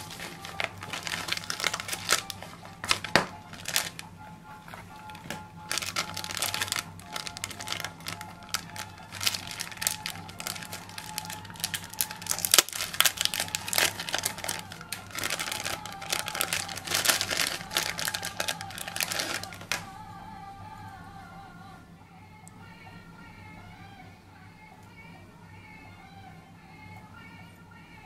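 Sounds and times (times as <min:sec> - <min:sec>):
plastic bag crinkling: 0:00.0 - 0:19.8
background music: 0:00.0 - 0:28.0.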